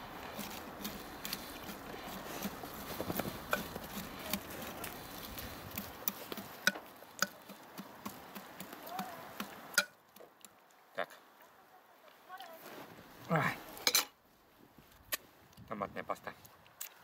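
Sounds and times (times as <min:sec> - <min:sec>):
spoon scraping a pot: 0:00.4 - 0:05.0.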